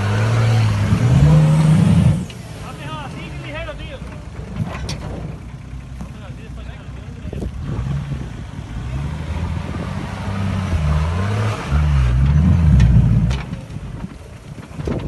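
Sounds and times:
diesel engine revving hard: 0.0s - 3.7s, 7.4s - 13.4s.

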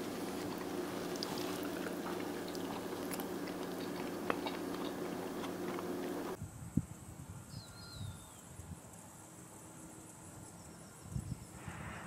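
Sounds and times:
mouth clicks: 0.0s - 6.4s
person chewing: 0.0s - 6.4s.

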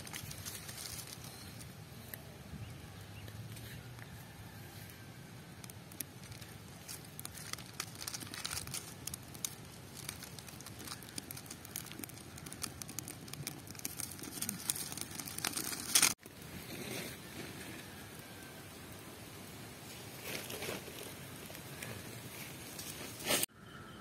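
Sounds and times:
lentils pattering in clay pot: 0.0s - 1.7s, 5.6s - 16.2s.

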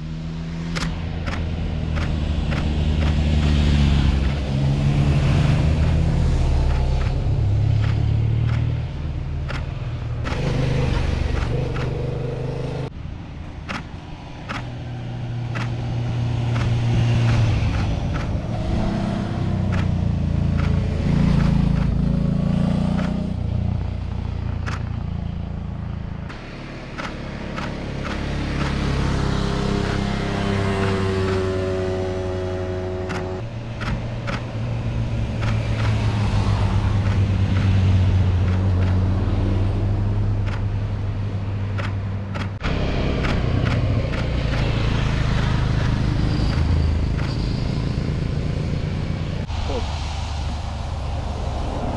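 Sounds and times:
engine accelerating: 0.0s - 13.0s, 13.7s - 51.9s
cars and motorcycles passing: 0.0s - 51.9s.

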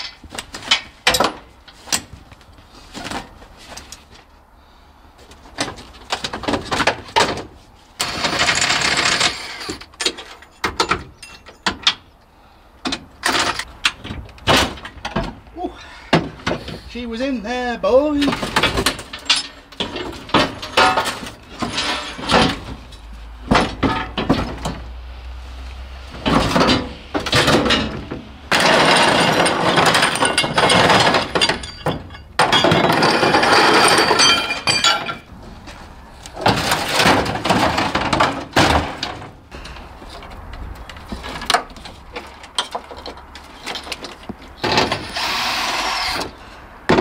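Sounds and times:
metal car parts clanking: 0.0s - 4.2s, 5.2s - 12.2s, 12.8s - 15.5s, 18.0s - 25.0s, 26.1s - 47.0s.

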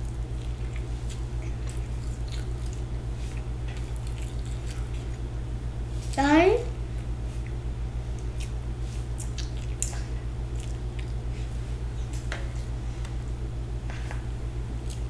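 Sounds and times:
child chewing: 0.0s - 5.3s, 7.0s - 12.8s, 13.9s - 15.0s
steady low hum: 0.0s - 15.0s
mouth clicks and smacks: 9.2s - 11.2s.

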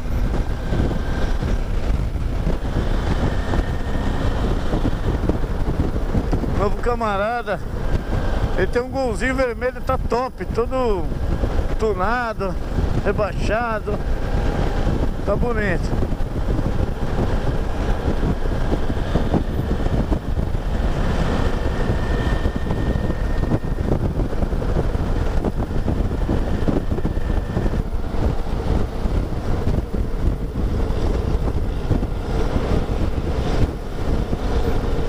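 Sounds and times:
motorcycle engine running: 0.0s - 8.8s, 10.9s - 35.0s
wind rushing over microphone: 0.0s - 35.0s.

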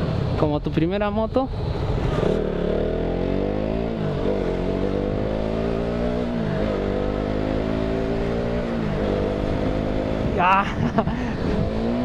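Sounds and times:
motorcycle engine accelerating: 1.8s - 12.0s.

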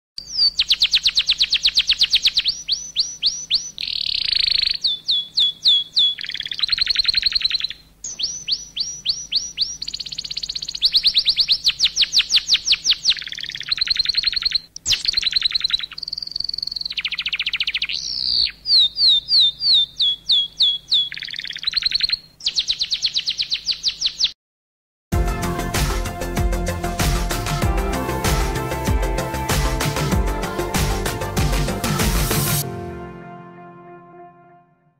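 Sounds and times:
canary singing: 0.2s - 24.4s.

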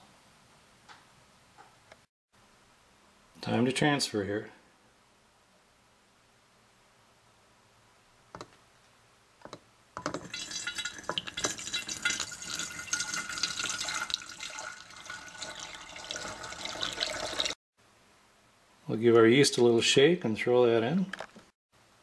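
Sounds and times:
liquid pouring into a glass flask: 10.2s - 17.6s.

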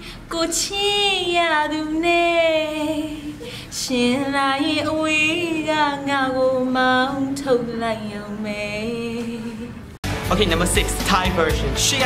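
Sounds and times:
woman singing unaccompanied: 0.2s - 9.9s
woman breathing in: 3.4s - 3.8s.

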